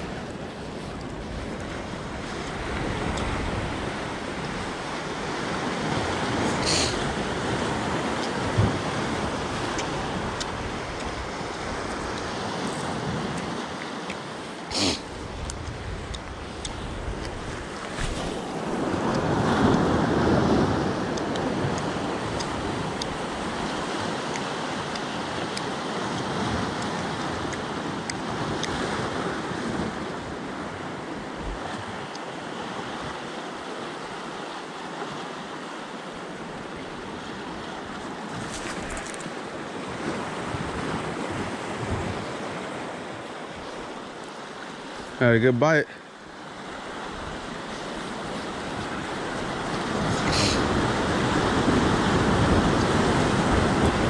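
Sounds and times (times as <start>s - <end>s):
wind buffeting microphone: 0.0s - 13.8s, 15.1s - 32.1s, 46.9s - 54.0s
ocean surf breaking on rocks: 0.0s - 54.0s.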